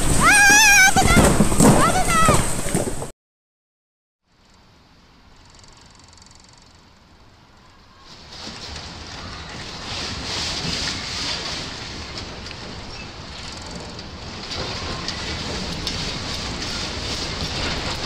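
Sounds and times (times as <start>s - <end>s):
earthquake rushing rumble: 0.0s - 3.1s, 8.1s - 18.0s
rattling and knocking: 8.4s - 18.0s.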